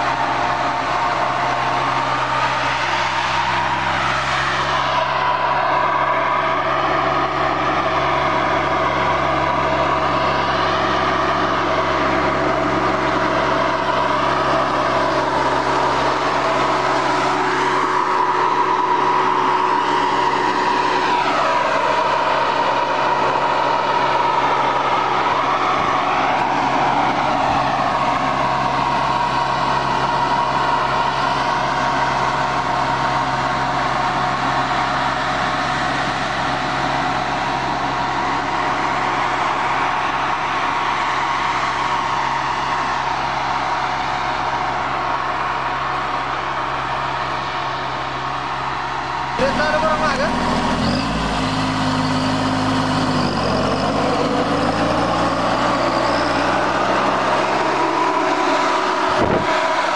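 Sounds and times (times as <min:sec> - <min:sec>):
tractor engine and sprayer fan drone: 0:00.0 - 0:59.9.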